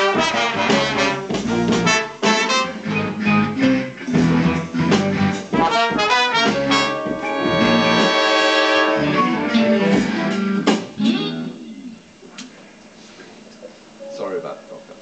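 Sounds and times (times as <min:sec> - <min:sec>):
live band with horns and guitars: 0:00.0 - 0:11.5.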